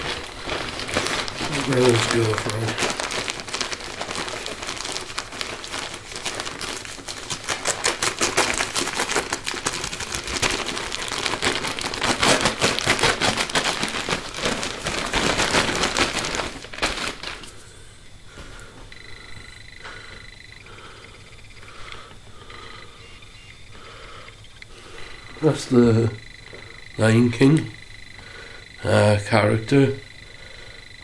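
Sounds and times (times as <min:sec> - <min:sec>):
wrapping paper crinkling: 0:00.0 - 0:18.7.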